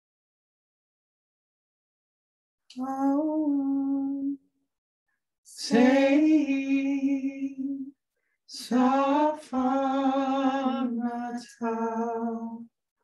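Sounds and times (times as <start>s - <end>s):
woman and man singing: 5.5s - 7.9s, 8.5s - 12.7s.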